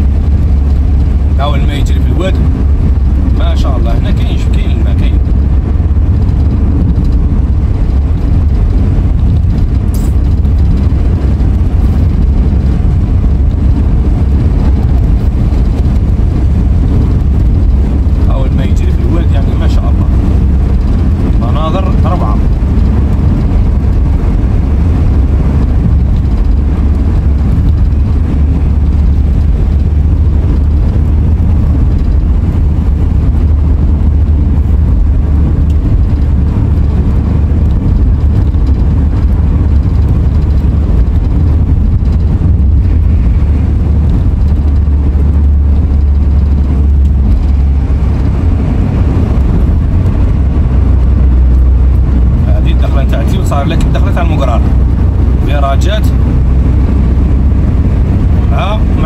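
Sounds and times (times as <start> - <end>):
car engine and road noise: 0.0 - 59.0.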